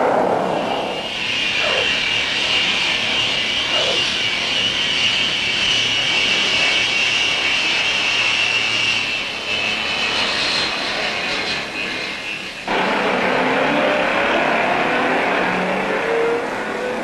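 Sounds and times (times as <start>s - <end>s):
rushing noise: 0.0s - 5.4s
jet engines whining: 0.0s - 17.0s.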